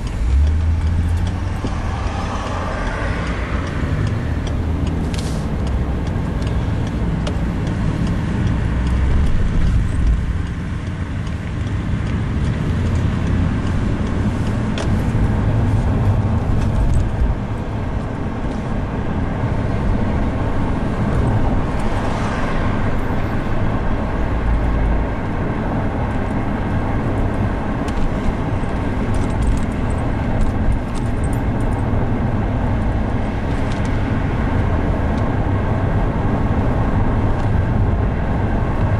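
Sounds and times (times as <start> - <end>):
car engine and tyre road noise: 0.0 - 38.9
passing vehicle: 0.0 - 38.9.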